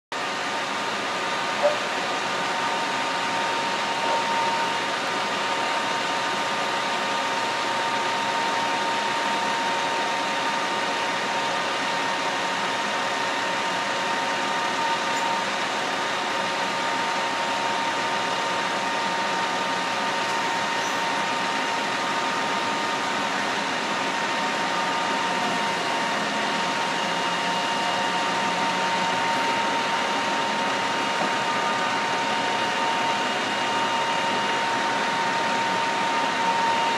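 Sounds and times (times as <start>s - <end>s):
machinery drone: 0.2s - 36.9s
faint even whine: 1.3s - 6.4s.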